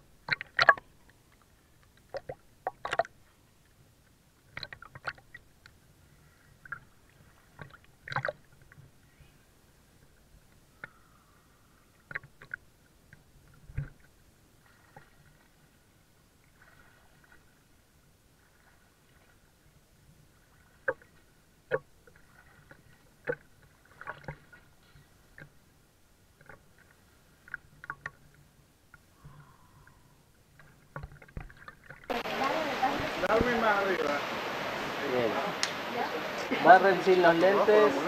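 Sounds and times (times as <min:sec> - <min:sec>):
small waves lapping and splashing: 0:00.0 - 0:38.0
sharp splashes and clicks: 0:00.2 - 0:05.8, 0:06.6 - 0:08.9, 0:12.0 - 0:15.5, 0:20.2 - 0:25.6, 0:26.3 - 0:29.2, 0:30.5 - 0:34.2, 0:35.6 - 0:35.9.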